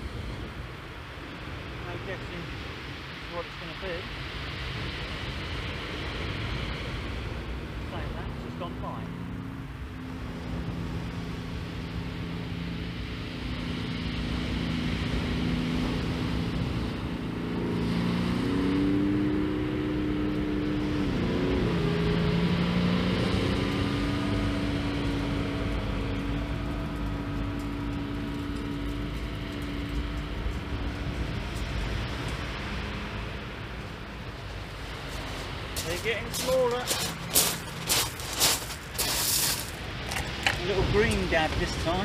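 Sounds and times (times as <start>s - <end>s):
wind noise: 0.0s - 42.0s
motor-like drone: 4.8s - 42.0s
small waves on shingle: 34.6s - 42.0s.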